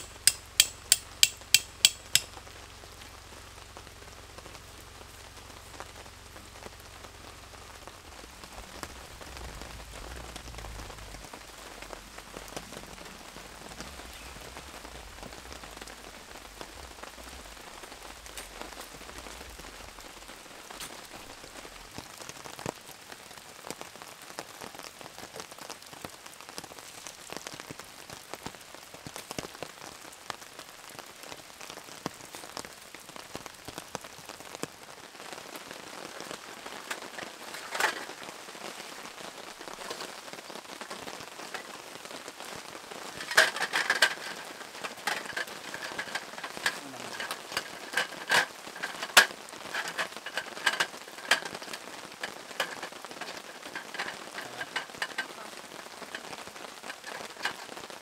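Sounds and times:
sharp clicks and knocks: 0:00.0 - 0:02.3, 0:43.2 - 0:55.5, 0:56.1 - 0:57.8
steady rain falling: 0:00.0 - 0:58.0.

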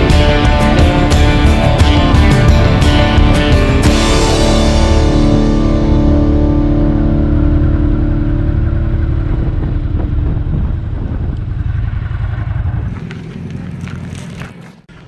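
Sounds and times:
rock music: 0:00.0 - 0:11.3
motorcycle engine running: 0:00.0 - 0:15.0.

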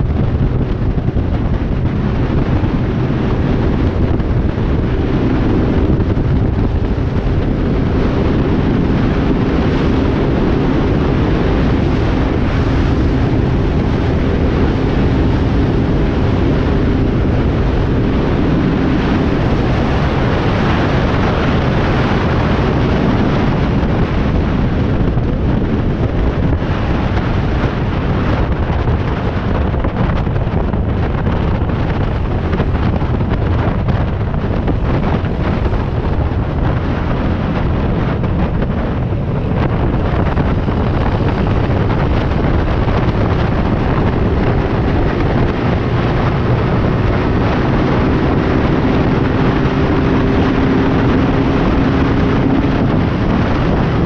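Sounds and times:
motorcycle engine running: 0:00.0 - 0:54.0
wind buffeting microphone: 0:00.0 - 0:54.0.

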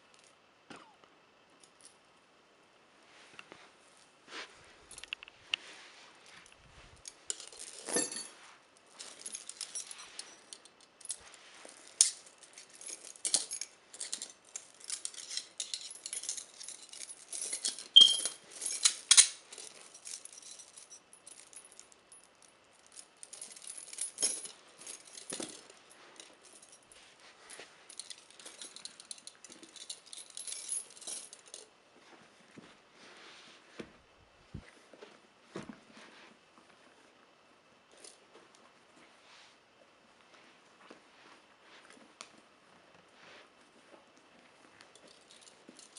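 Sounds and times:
metal chain and handcuffs rattling: 0:06.2 - 0:31.7, 0:44.6 - 0:45.9.

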